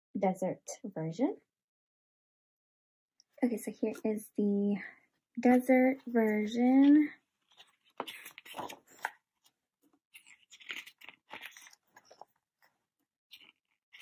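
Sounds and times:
paper pages rustling: 0:06.0 - 0:09.6.

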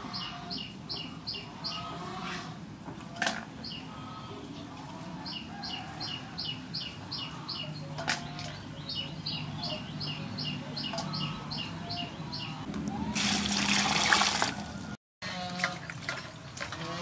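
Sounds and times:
bird chirping: 0:05.3 - 0:12.7
water pouring into metal basin: 0:13.1 - 0:14.6.

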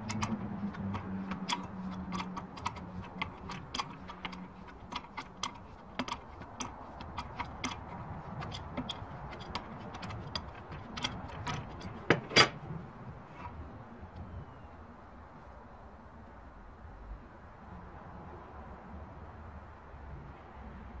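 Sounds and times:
wrench metallic clicks and clinks: 0:00.0 - 0:12.6.

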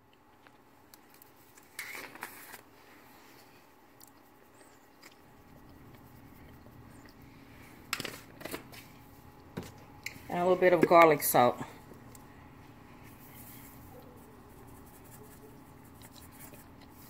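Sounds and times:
spice shaker rustling: 0:13.0 - 0:17.0.

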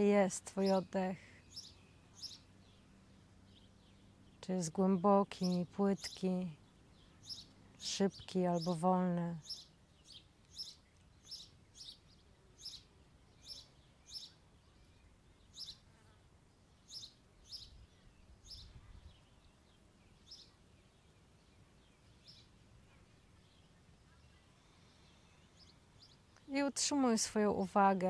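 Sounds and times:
small bird chirping: 0:00.1 - 0:26.6.

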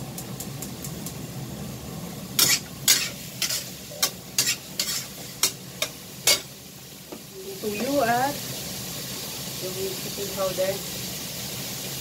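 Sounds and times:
faint sizzle: 0:00.0 - 0:12.0
spatula scraping a wok: 0:02.4 - 0:06.6.

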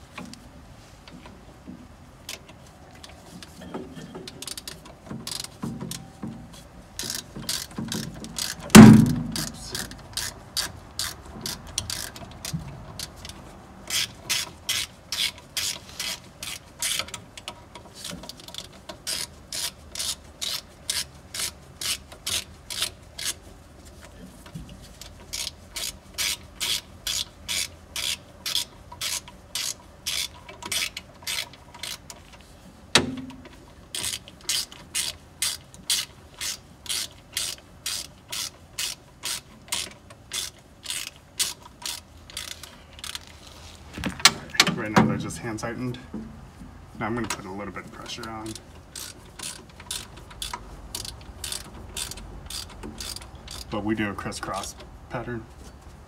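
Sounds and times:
ratchet wrench clicking: 0:04.4 - 0:06.1, 0:07.0 - 0:23.4, 0:25.0 - 0:32.4, 0:33.4 - 0:43.6, 0:48.2 - 0:53.7
loud metallic knock: 0:08.8 - 0:09.4.

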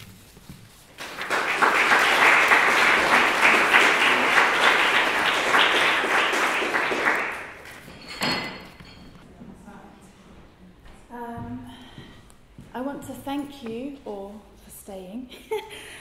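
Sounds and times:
audience applauding: 0:01.0 - 0:07.9.

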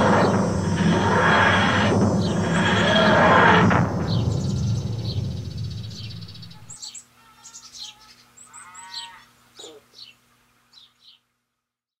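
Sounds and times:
low rumble: 0:00.0 - 0:06.8
birds chirping: 0:00.0 - 0:11.3.

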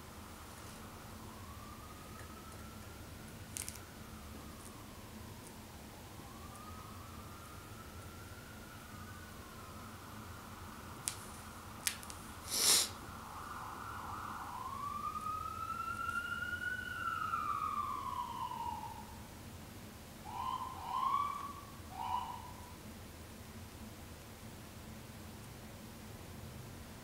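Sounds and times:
siren wailing and yelping: 0:00.8 - 0:10.8, 0:13.0 - 0:19.2, 0:20.2 - 0:22.8.

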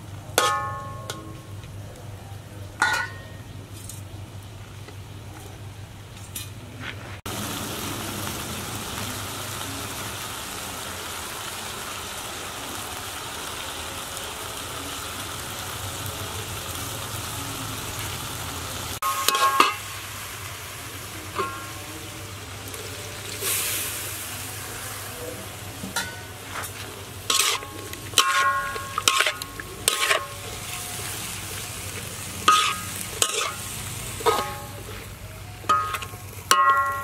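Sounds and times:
metal spatula clanking against wok: 0:00.4 - 0:01.5, 0:02.8 - 0:03.6, 0:19.0 - 0:19.9, 0:21.3 - 0:21.8, 0:25.9 - 0:26.4, 0:27.3 - 0:30.5, 0:32.4 - 0:34.9, 0:35.6 - 0:37.0
meat sizzling in a wok: 0:07.3 - 0:37.0.

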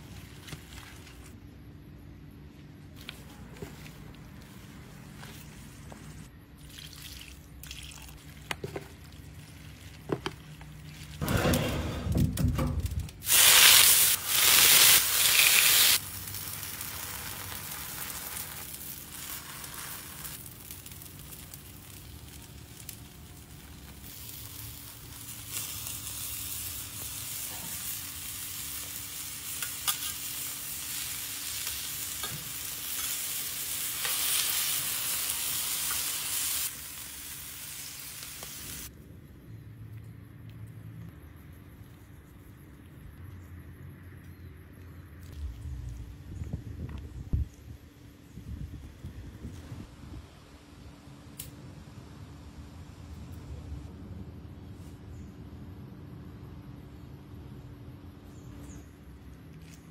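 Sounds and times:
food sizzling on griddle: 0:13.2 - 0:38.9.

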